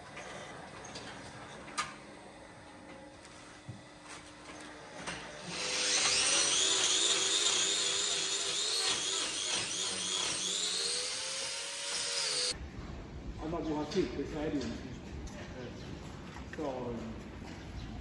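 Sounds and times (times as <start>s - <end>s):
angle grinder whining: 5.2s - 12.6s.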